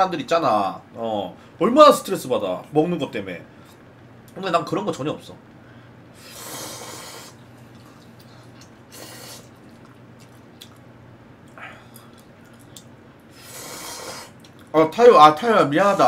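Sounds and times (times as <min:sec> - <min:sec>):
slurping noodles: 0:06.2 - 0:09.9, 0:13.3 - 0:14.4.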